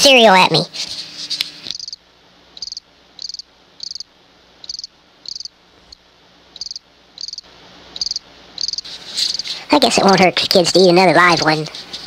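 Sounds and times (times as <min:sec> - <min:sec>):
cricket chirping: 0:01.7 - 0:02.0, 0:02.6 - 0:05.5, 0:06.6 - 0:09.4.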